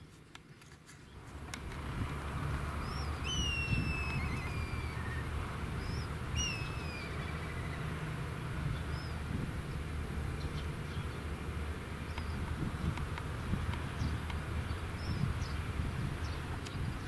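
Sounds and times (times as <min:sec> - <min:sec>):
kite whistling call: 0:02.8 - 0:08.0.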